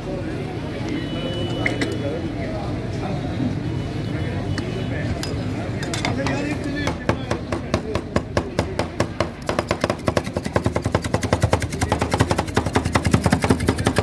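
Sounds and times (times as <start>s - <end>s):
metal spatulas chopping on steel: 5.3s - 14.0s.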